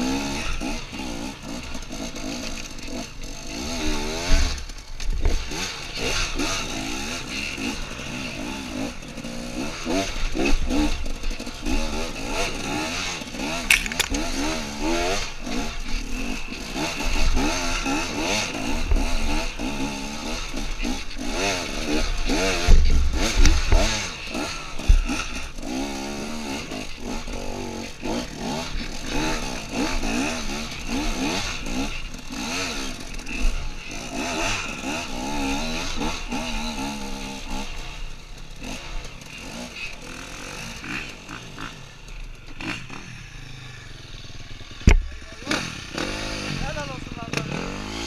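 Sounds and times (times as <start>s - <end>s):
dirt bike engine revving: 0.0s - 48.0s
bike knocks and clatter: 13.6s - 14.4s, 44.8s - 45.1s.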